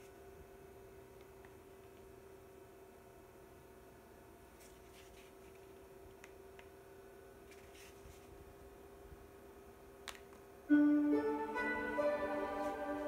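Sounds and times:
projector cooling fan humming: 0:00.0 - 0:13.0
loud piano music: 0:10.7 - 0:13.0.

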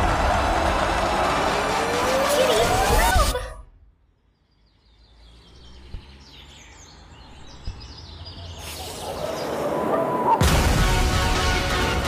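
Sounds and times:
birds chirping: 0:04.1 - 0:10.4.

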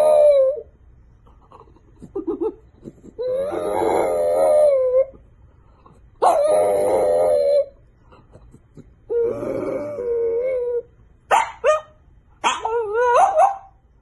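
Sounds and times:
dog howling: 0:00.0 - 0:00.7, 0:03.2 - 0:05.2, 0:06.2 - 0:07.8, 0:09.1 - 0:10.9, 0:12.5 - 0:13.7.

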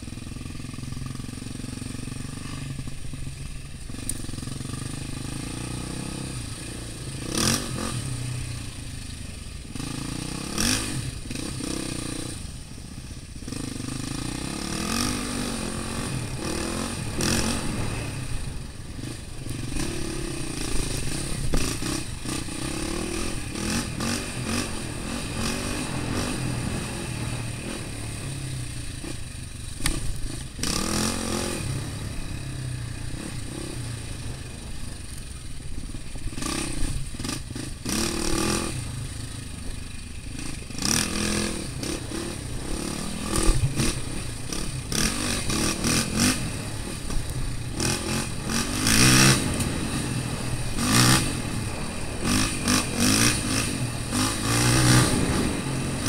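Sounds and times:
off-road vehicle engine revving: 0:00.0 - 0:12.6, 0:13.4 - 0:56.0.

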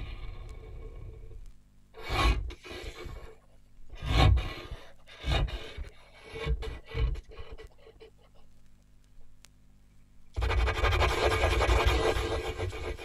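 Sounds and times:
faint low hum: 0:00.0 - 0:13.0
rough scraping strokes: 0:10.4 - 0:13.0.

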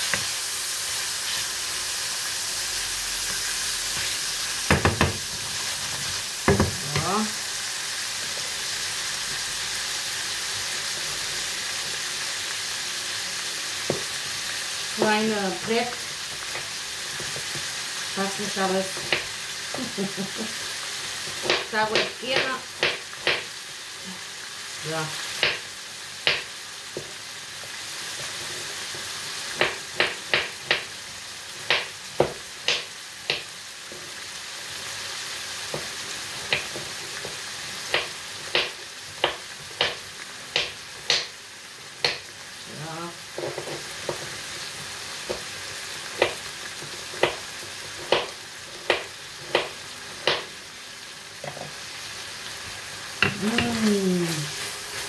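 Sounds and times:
food sizzling in a frying pan: 0:00.0 - 0:55.0
utensil knocking against pan: 0:04.7 - 0:05.3.

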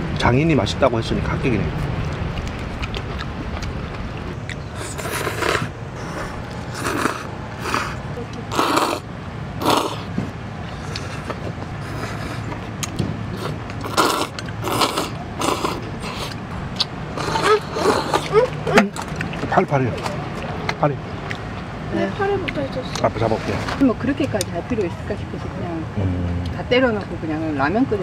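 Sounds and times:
steady low hum: 0:00.0 - 0:28.0
slurping noodle soup: 0:04.7 - 0:09.0, 0:09.6 - 0:10.1, 0:10.7 - 0:12.7, 0:13.3 - 0:16.4, 0:17.2 - 0:18.5.

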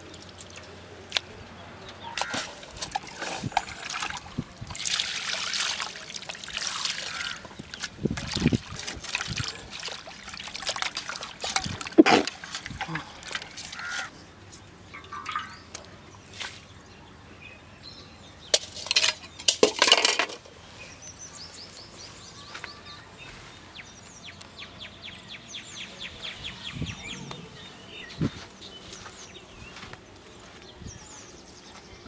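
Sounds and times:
bird chirping: 0:20.7 - 0:32.0.

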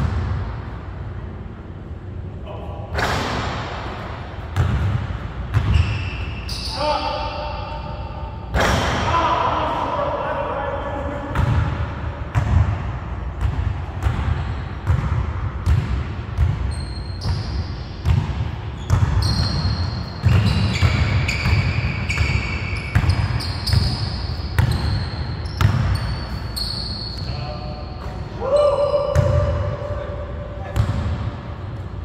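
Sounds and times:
sneakers squeaking: 0:03.0 - 0:08.6, 0:13.4 - 0:32.0.

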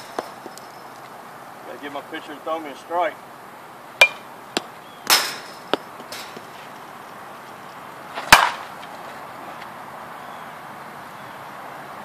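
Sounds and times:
bat cracking against softball: 0:04.0 - 0:07.2, 0:08.1 - 0:09.7.

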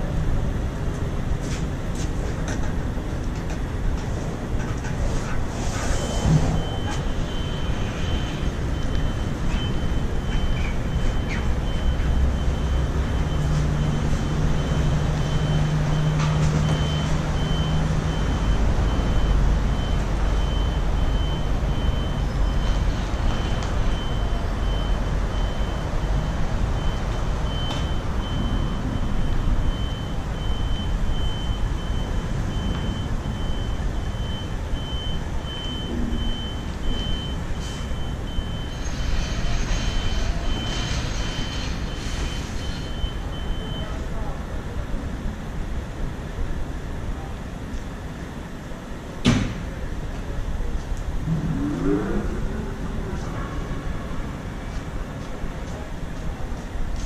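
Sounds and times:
diesel engine rumble: 0:00.0 - 0:57.0
reversing alarm beeping: 0:04.7 - 0:44.9.

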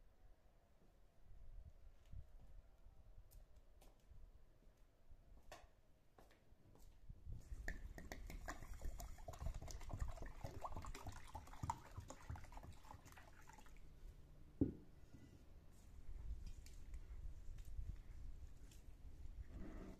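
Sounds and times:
water pouring into a bowl: 0:08.1 - 0:13.8.

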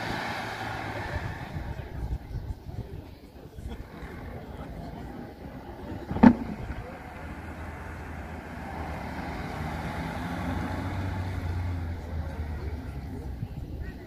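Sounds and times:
sports car engine running: 0:00.0 - 0:14.0
sharp thump: 0:06.0 - 0:06.9.

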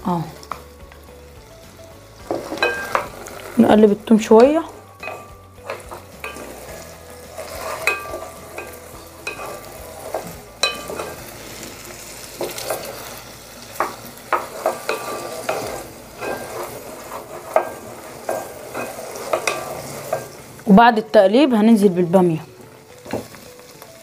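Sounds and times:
garlic sizzling in oil: 0:00.0 - 0:24.0
spatula scraping and knocking pot: 0:02.2 - 0:03.7, 0:04.4 - 0:11.6, 0:12.2 - 0:20.5.

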